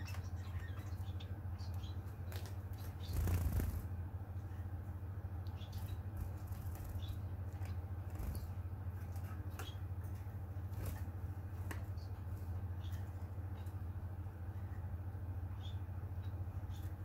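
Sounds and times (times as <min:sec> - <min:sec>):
finches chirping: 0:00.0 - 0:03.9, 0:05.4 - 0:10.0, 0:11.8 - 0:17.0
low room hum: 0:00.0 - 0:17.0.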